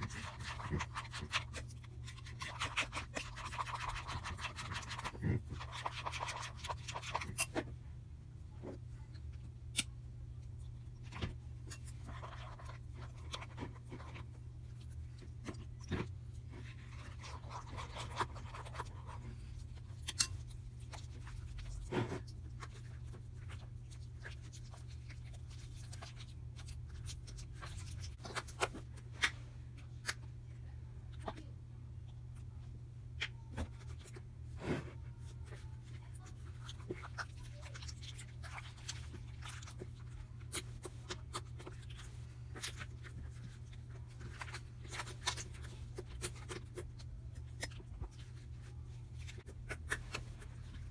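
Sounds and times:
spoon scraping slime in bowl: 0:00.0 - 0:07.7, 0:11.1 - 0:28.5.

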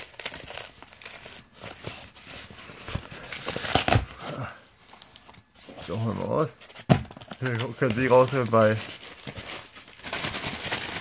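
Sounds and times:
cardboard box tearing open: 0:00.0 - 0:02.0, 0:02.9 - 0:04.4.

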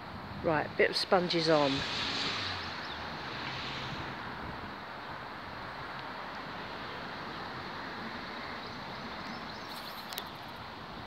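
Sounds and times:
wind noise on microphone: 0:00.0 - 0:11.0.

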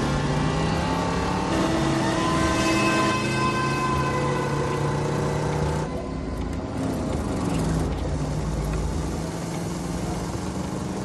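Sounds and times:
road noise: 0:00.0 - 0:11.0
car engine slowing: 0:04.4 - 0:11.0.

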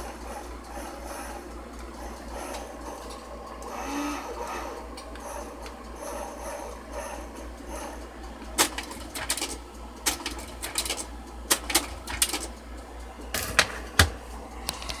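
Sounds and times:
steady hum: 0:00.0 - 0:15.0
slide projector clicking and clunking: 0:08.4 - 0:12.6, 0:13.2 - 0:15.0.

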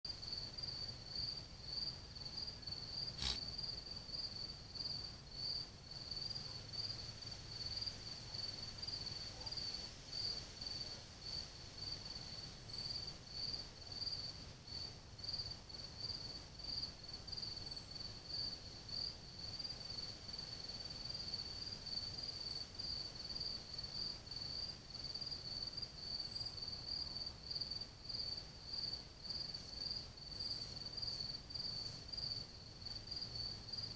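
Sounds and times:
cricket chirping: 0:00.1 - 0:33.9
sharp click: 0:03.2 - 0:03.4.

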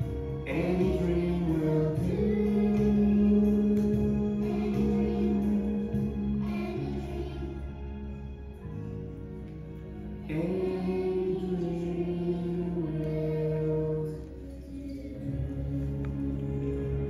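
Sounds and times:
children singing in unison: 0:00.0 - 0:08.2, 0:10.2 - 0:17.0
slow music with held notes: 0:00.0 - 0:17.0.

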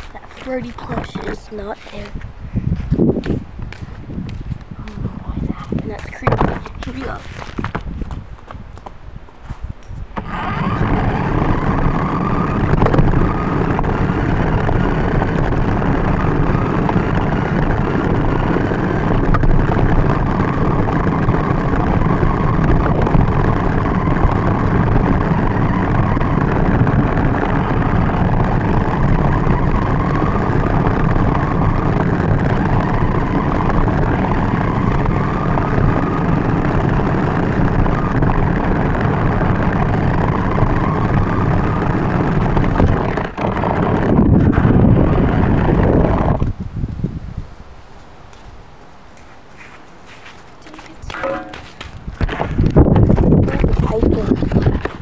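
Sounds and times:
wheels rumbling on pavement: 0:00.0 - 0:55.0
electric motor whine: 0:10.1 - 0:46.6.

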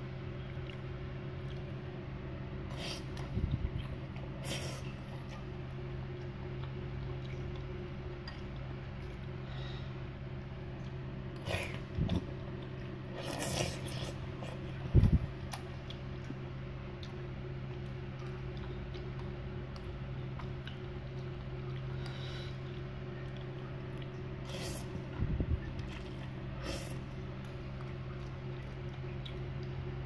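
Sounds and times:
steady low hum: 0:00.0 - 0:30.0
person chewing and eating: 0:10.6 - 0:30.0.

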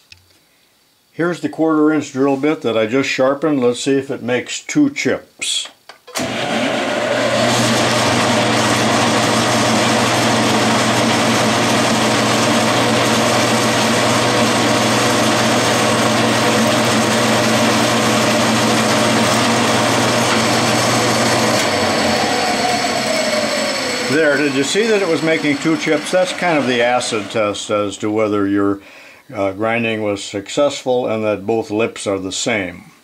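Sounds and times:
drill cutting metal: 0:06.2 - 0:27.9
lathe motor hum: 0:06.2 - 0:27.9.

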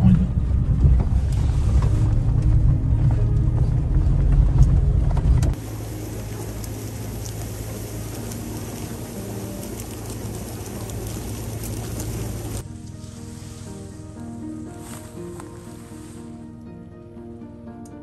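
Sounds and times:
vehicle engine rumble: 0:00.0 - 0:16.4
wind hiss: 0:05.6 - 0:16.5.

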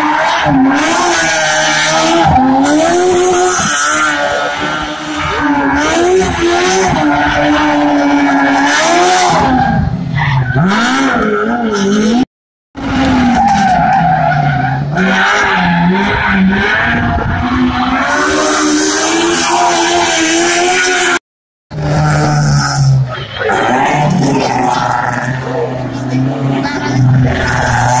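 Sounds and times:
rally car engine revving: 0:00.0 - 0:28.0
tyres skidding: 0:12.8 - 0:28.0.

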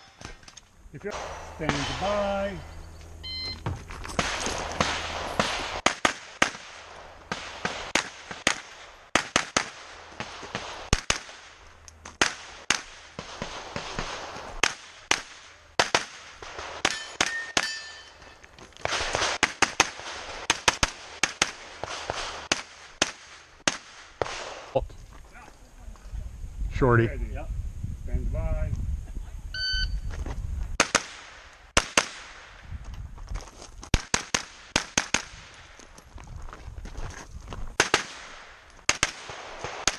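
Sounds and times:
steel targets ringing: 0:01.0 - 0:03.5, 0:16.8 - 0:18.5
shot timer beep: 0:02.7 - 0:03.6, 0:29.6 - 0:30.0
carbine firing rapid shots: 0:37.8 - 0:39.9.

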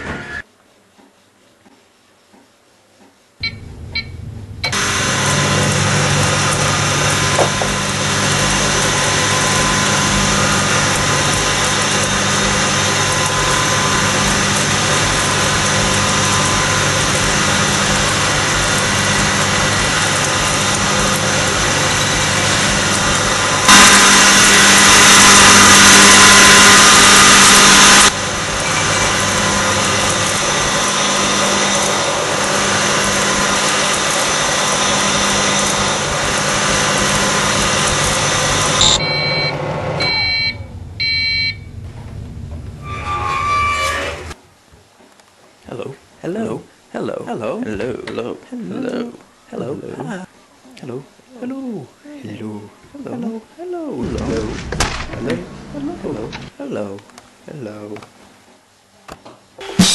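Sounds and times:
microwave oven humming: 0:03.4 - 0:43.2
rushing noise: 0:03.4 - 0:44.4.

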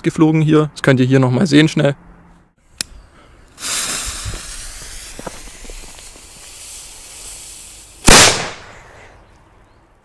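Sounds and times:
firecracker fuse hissing: 0:03.4 - 0:08.5
footsteps on gravel: 0:03.9 - 0:06.6.

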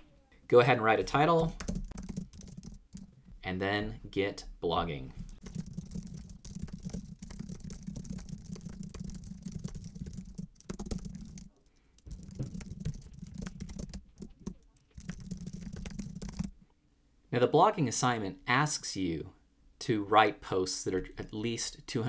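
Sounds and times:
keyboard typing clicks: 0:01.4 - 0:03.1, 0:05.3 - 0:16.5.

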